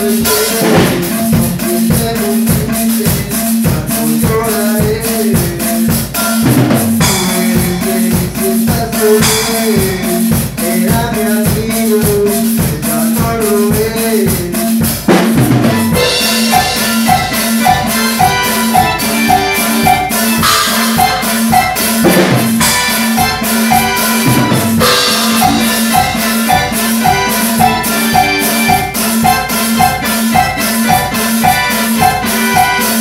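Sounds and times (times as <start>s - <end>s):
drum kit playing dance rhythm: 0.0s - 33.0s
pulsing bass line: 15.6s - 32.8s
electronic keyboard melody: 15.6s - 33.0s
cymbal crashes: 20.4s - 27.8s.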